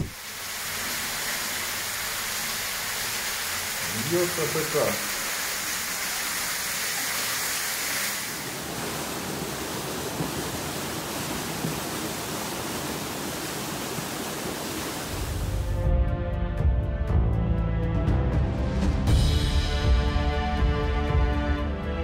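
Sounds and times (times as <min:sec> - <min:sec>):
floodwater rushing and splashing: 0:00.0 - 0:15.7.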